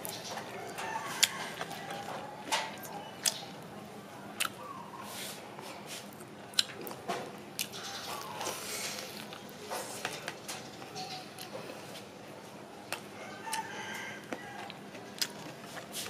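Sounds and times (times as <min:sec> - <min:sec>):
chewing crispy chicken: 0:00.0 - 0:03.6, 0:07.6 - 0:09.6, 0:12.9 - 0:16.0.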